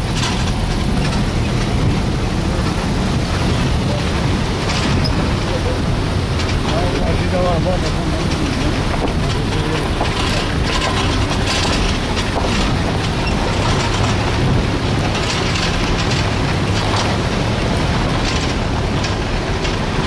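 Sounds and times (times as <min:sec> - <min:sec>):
rattles and knocks: 0:00.0 - 0:20.0
vehicle engine and road noise: 0:00.0 - 0:20.0.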